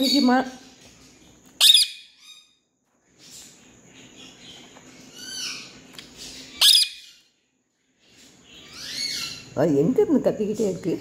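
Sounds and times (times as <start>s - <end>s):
parakeet chirping: 0.0s - 2.6s, 3.2s - 7.4s, 8.1s - 9.6s
parakeet shrill screech: 1.6s - 2.5s, 6.5s - 7.2s.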